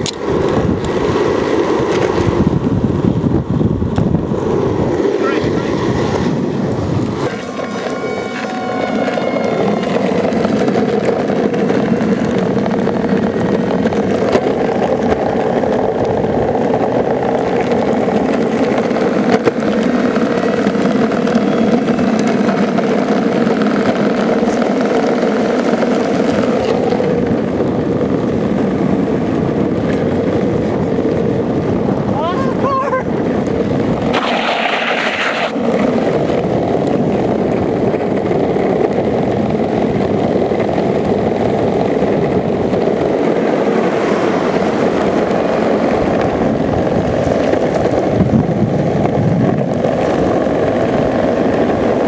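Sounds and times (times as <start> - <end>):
longboard wheels rolling on asphalt: 0.0 - 52.0.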